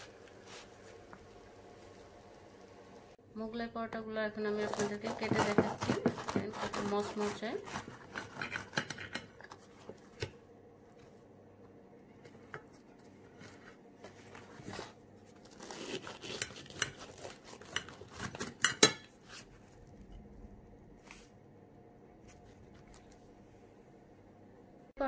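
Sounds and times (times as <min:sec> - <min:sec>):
crackling of fried crust: 0:04.5 - 0:10.3, 0:14.2 - 0:20.1
knife clicking and scraping plate: 0:07.8 - 0:09.5.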